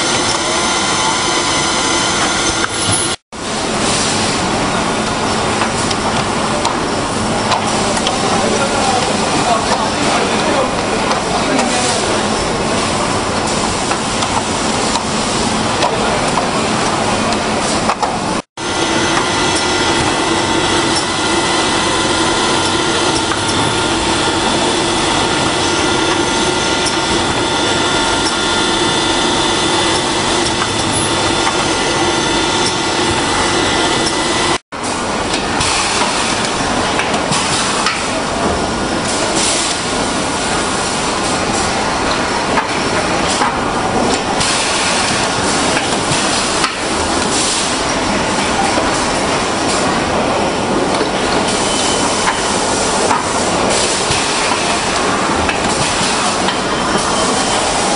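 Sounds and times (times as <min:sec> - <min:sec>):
industrial machinery hiss: 0:18.6 - 0:34.6.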